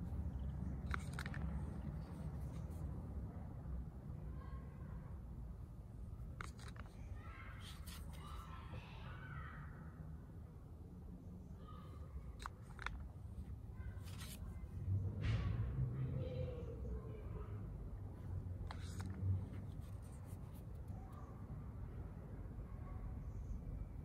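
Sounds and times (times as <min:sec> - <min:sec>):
cards flipping and clicking: 0:00.0 - 0:02.9, 0:06.3 - 0:08.5, 0:12.3 - 0:14.7, 0:18.6 - 0:21.0.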